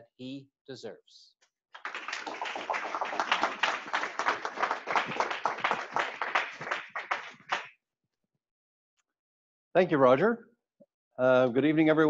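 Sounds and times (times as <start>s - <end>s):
audience applauding: 1.8s - 7.7s.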